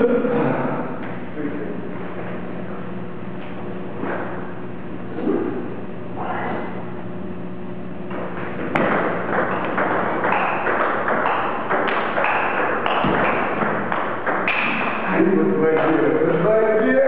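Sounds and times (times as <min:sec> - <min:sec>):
table tennis ball hits: 0:08.1 - 0:16.0.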